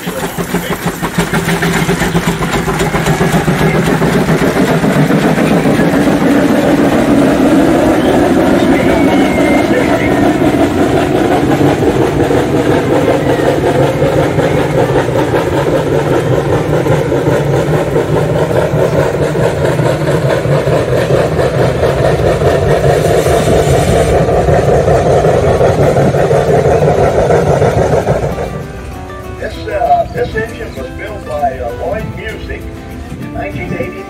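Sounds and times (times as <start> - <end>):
heavy engine running: 0.0 - 34.0.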